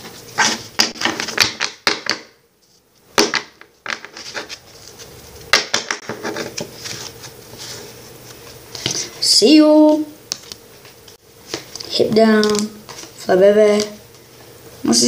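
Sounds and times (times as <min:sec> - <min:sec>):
trading cards clicking and rustling: 0:10.3 - 0:14.0.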